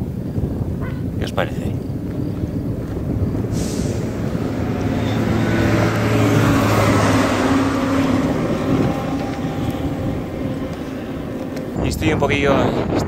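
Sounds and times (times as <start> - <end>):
vehicle passing by: 1.9 - 12.1.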